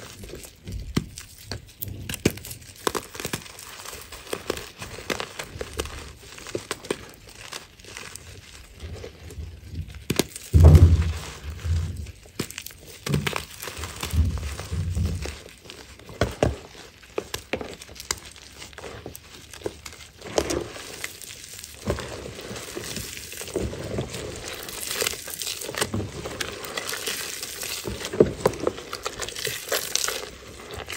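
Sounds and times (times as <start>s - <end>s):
dull thumps: 10.5s - 12.2s
chalk crunching in hands: 16.6s - 30.9s.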